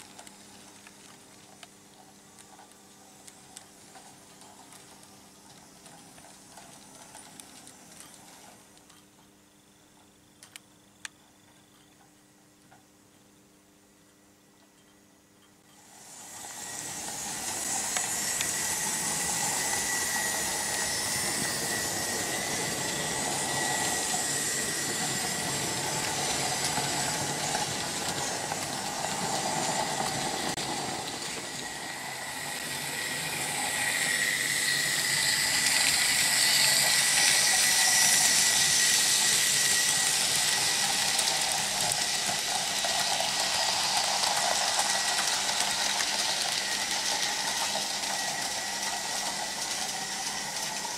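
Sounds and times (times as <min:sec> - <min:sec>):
model train wheels on rails: 0:00.0 - 0:09.3, 0:15.6 - 0:50.9
thin steady whine: 0:00.0 - 0:50.9.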